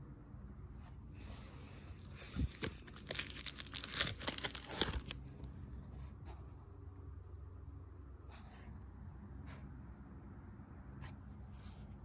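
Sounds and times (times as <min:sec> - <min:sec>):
faint low hum: 0:00.0 - 0:12.0
paper page rustling: 0:02.0 - 0:05.2.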